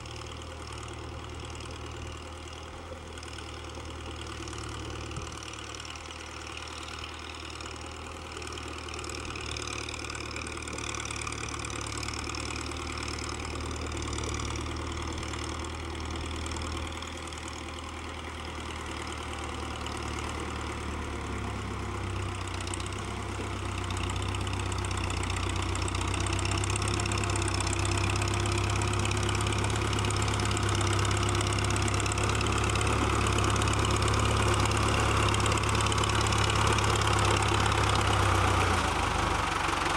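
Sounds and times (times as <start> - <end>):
tractor diesel engine running: 0.0 - 39.9
wheels driving through mud: 18.5 - 39.9.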